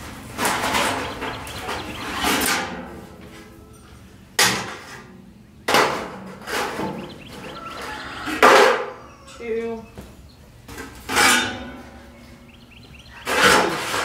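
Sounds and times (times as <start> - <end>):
metal sheets scraping and rattling: 0.0 - 3.5, 4.4 - 8.9, 11.0 - 12.0, 13.2 - 14.0
metal roofing sheets clanking: 0.0 - 3.8, 4.4 - 9.0, 10.8 - 12.1, 13.1 - 14.0.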